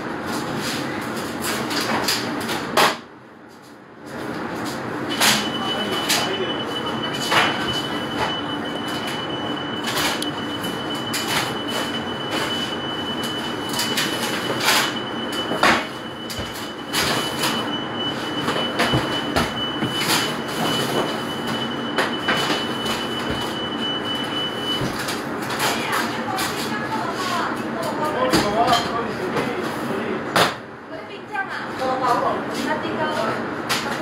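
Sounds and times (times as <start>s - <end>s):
trays and utensils clattering: 24.2s - 29.7s.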